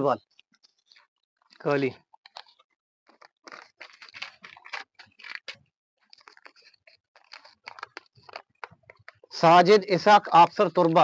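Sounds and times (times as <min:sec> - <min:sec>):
paper rustling and crinkling: 0:00.6 - 0:09.4.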